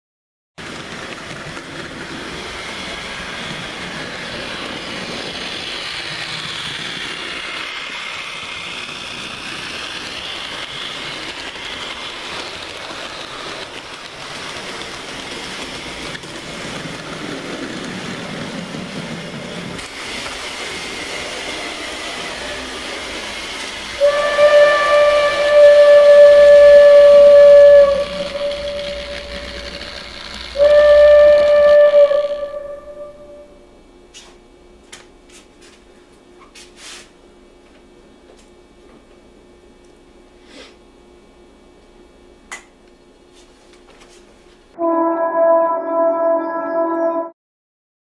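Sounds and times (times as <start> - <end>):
model train rumbling on track: 0.6 - 33.5
loud held pitched tone: 44.8 - 47.4.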